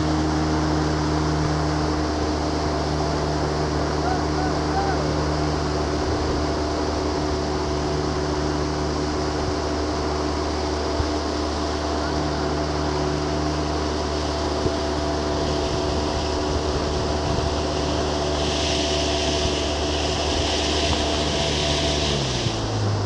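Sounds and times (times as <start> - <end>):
boat engine hum: 0.0 - 23.0
bright hiss: 15.2 - 22.8.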